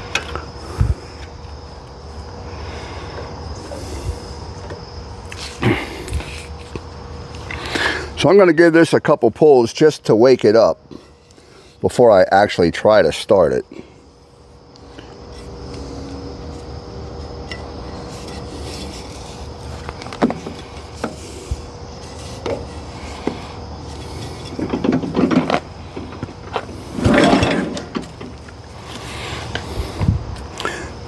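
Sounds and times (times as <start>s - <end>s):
recoil starter rope pulled: 17.5s - 29.7s.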